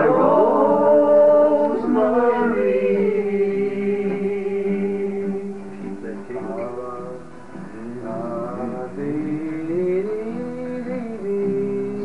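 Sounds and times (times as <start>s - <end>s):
men singing together: 0.0s - 5.6s.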